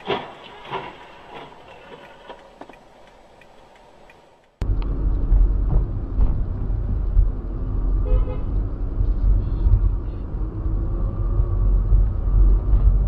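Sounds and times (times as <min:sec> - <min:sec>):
car engine and road noise: 0:00.0 - 0:13.0
car horn toot: 0:08.0 - 0:08.5.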